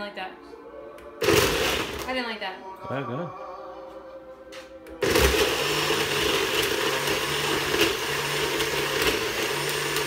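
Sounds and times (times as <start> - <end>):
blender motor running: 1.2 - 2.1, 5.0 - 10.0.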